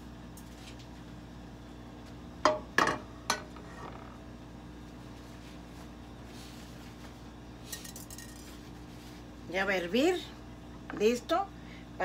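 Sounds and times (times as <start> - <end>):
pans clinking and knocking: 2.5 - 3.5.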